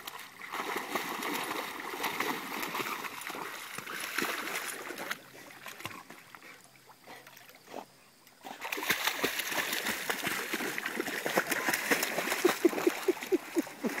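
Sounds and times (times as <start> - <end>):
dog splashing in water: 0.0 - 6.4, 8.4 - 14.0.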